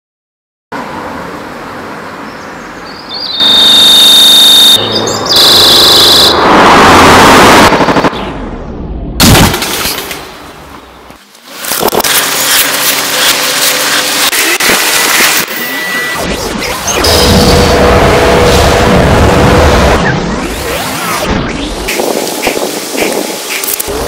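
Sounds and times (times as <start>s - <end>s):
outdoor background noise: 0.8s - 24.0s
bird chirps: 2.8s - 3.8s
loud distorted buzzing tone: 3.4s - 8.1s, 11.8s - 21.2s.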